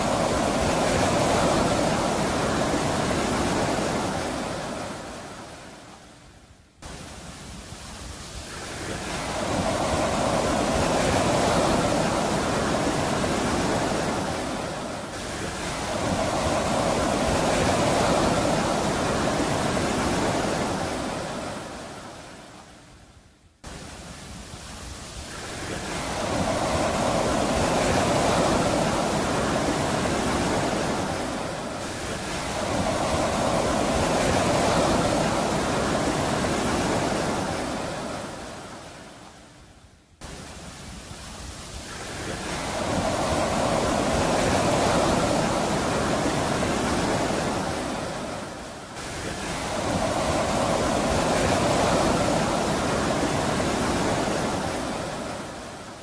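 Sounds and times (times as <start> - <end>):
sea waves breaking: 0.0 - 22.9, 23.6 - 39.6, 40.2 - 56.0.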